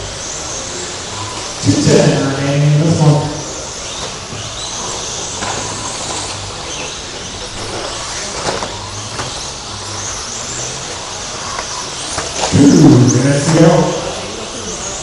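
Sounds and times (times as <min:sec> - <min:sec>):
electric motors whining: 0:00.0 - 0:15.0.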